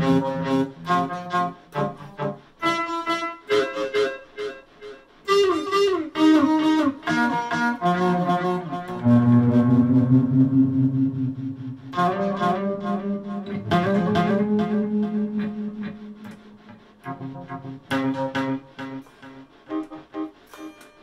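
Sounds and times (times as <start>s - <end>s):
electric guitar melody: 0.0s - 21.0s.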